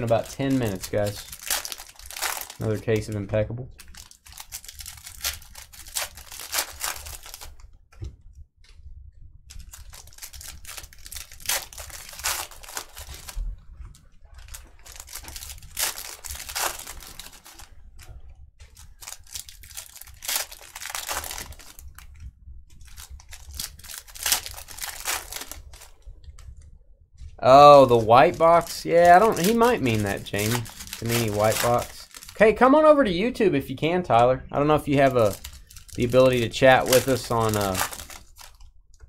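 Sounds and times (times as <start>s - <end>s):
wrappers tearing and crinkling: 0.0s - 3.2s, 3.8s - 7.6s, 9.5s - 13.5s, 14.3s - 17.8s, 18.6s - 22.1s, 22.8s - 26.0s, 27.5s - 32.6s, 34.6s - 38.7s.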